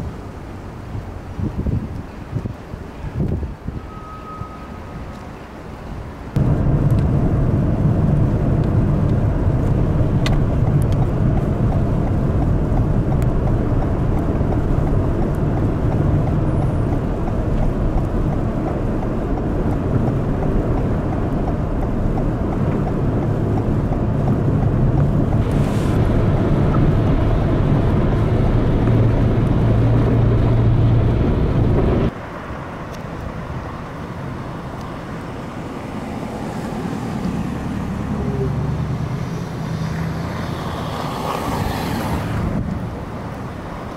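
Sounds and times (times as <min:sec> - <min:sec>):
cars on snowy street: 0:00.0 - 0:43.9
heavy truck engine rumble: 0:00.0 - 0:43.9
brief hiss: 0:25.4 - 0:26.2.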